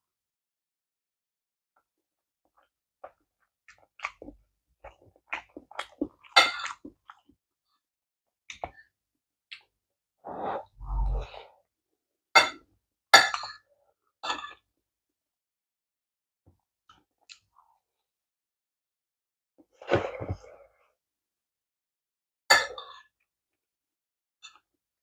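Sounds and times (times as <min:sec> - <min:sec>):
breathy exhale: 0:10.3 - 0:11.6.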